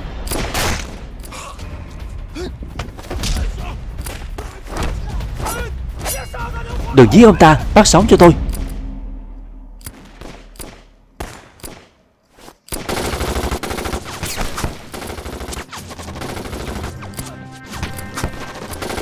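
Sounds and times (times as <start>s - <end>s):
gunshots: 0.0s - 1.2s, 9.8s - 12.1s, 12.7s - 19.0s
film music: 0.0s - 12.3s, 14.8s - 19.0s
rapid automatic gunfire: 12.8s - 17.2s, 18.3s - 19.0s.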